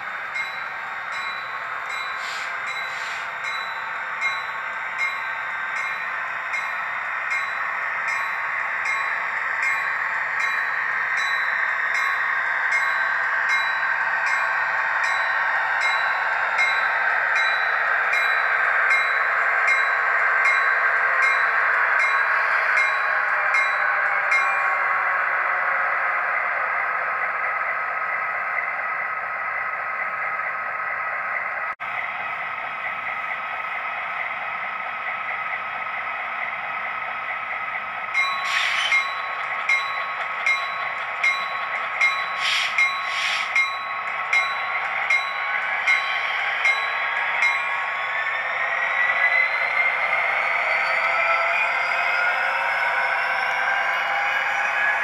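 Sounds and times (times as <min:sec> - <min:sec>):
wheels clicking over rail joints: 0:35.2 - 0:48.1
model train motor whine: 0:38.2 - 0:39.8, 0:40.5 - 0:43.7.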